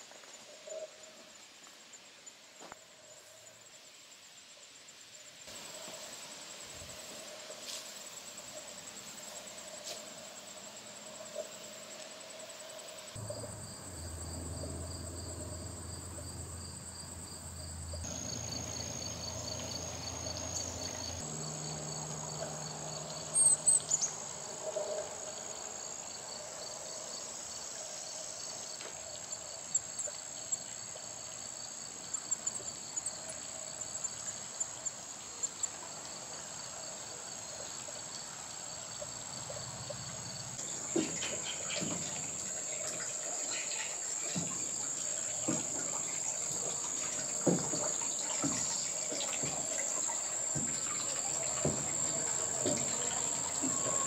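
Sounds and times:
insects trilling: 0.0s - 54.0s
fast pulsing insect chirp: 8.0s - 24.5s.

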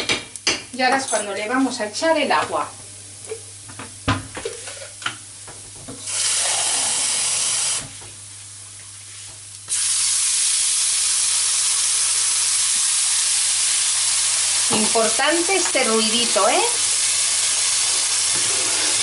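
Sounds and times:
water sizzling in a hot pan: 5.8s - 8.0s, 9.1s - 19.0s.

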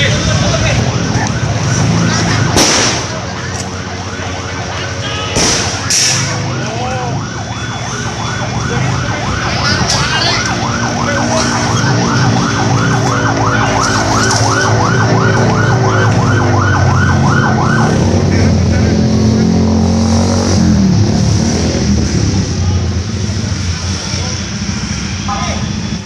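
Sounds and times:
siren yelping: 0.2s - 19.7s.

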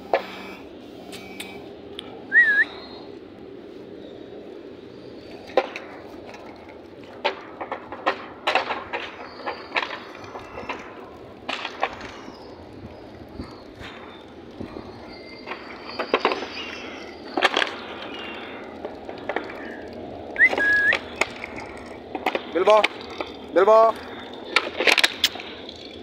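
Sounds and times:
whistled note: 2.3s - 3.1s, 20.4s - 21.0s.

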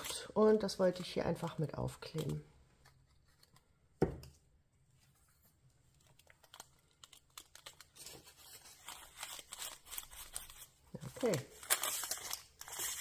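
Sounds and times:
fingers tapping and rustling paper: 6.0s - 13.0s.

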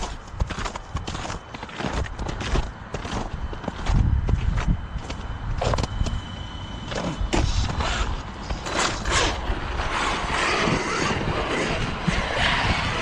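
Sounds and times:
rc truck driving on snow: 0.0s - 6.3s, 6.9s - 13.0s.

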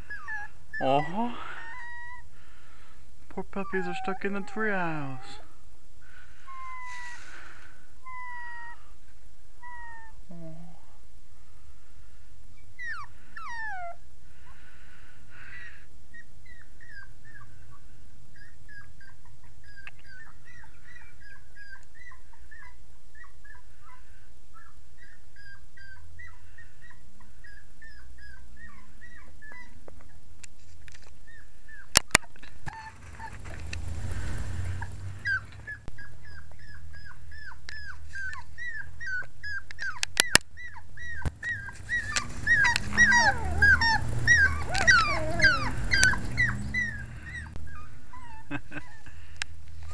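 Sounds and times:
puppies whining and whimpering: 0.0s - 2.3s, 3.4s - 5.6s, 6.4s - 9.0s, 9.6s - 10.7s, 12.6s - 14.0s, 15.4s - 17.5s, 18.4s - 24.0s, 24.6s - 30.2s, 31.2s - 33.6s, 34.7s - 49.9s.

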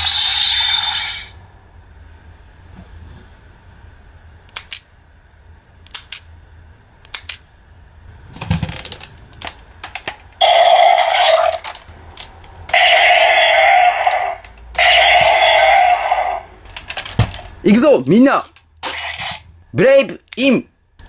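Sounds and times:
electronic toy sound effects: 0.0s - 1.4s, 10.4s - 11.6s, 12.8s - 16.5s
plastic toy clicks and snaps: 4.5s - 4.9s, 5.8s - 6.3s, 7.0s - 7.4s, 14.0s - 15.4s.

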